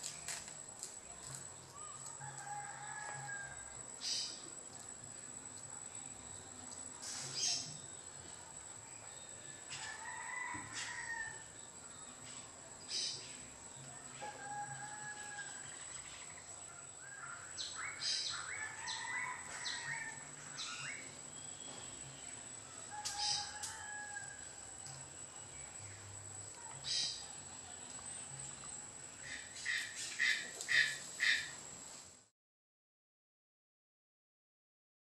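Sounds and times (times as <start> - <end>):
birds chirping and whistling: 23.1 - 23.6.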